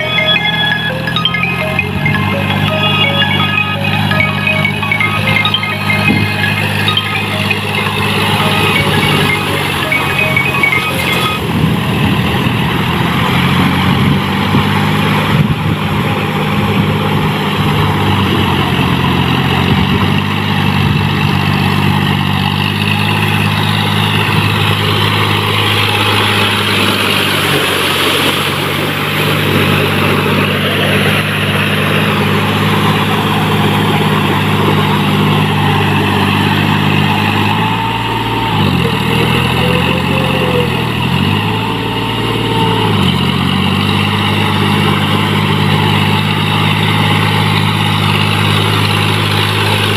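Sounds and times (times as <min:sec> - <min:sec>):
tractor diesel engine running: 0:00.0 - 0:49.9
wheels churning through mud: 0:00.0 - 0:49.9.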